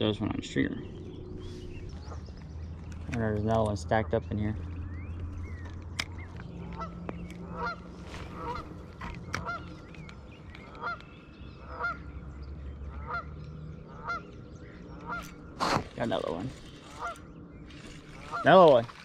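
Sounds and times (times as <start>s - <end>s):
goose honking: 6.7s - 8.8s, 9.4s - 9.8s, 10.8s - 11.0s, 11.6s - 12.0s, 12.9s - 13.3s, 13.9s - 14.3s, 14.9s - 16.2s, 16.8s - 17.3s, 18.1s - 18.9s.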